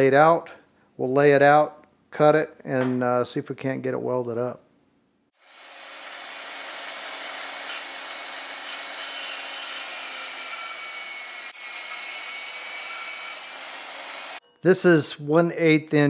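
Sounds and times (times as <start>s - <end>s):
band saw cutting steel: 5.4s - 14.4s.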